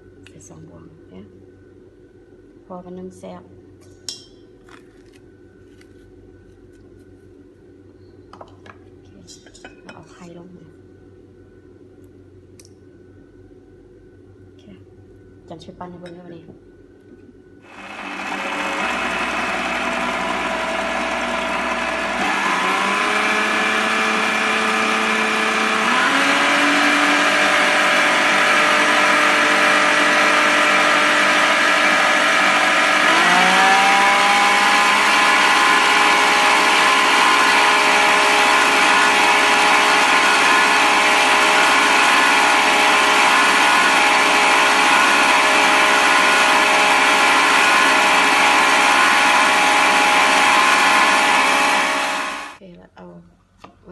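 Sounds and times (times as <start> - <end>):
stand mixer motor whine: 17.6 - 52.6.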